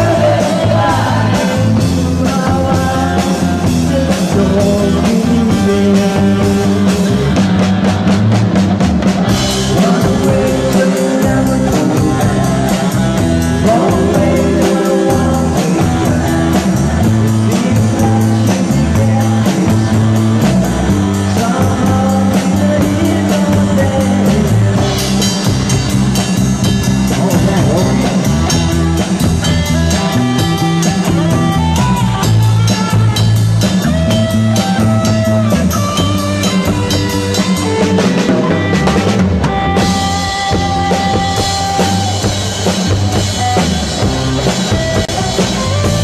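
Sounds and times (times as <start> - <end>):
man singing into a microphone: 0.0 - 7.4, 9.6 - 25.5, 27.1 - 28.7
drum kit beat with cymbals: 0.0 - 46.0.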